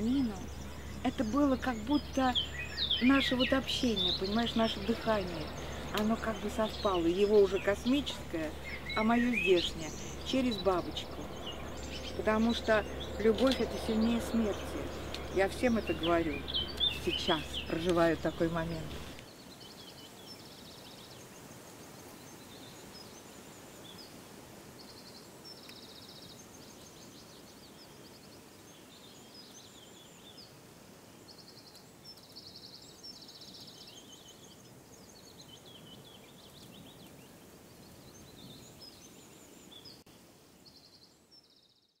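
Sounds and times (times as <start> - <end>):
birds chirping and trilling: 0.0 - 21.4
low background hiss: 0.0 - 42.0.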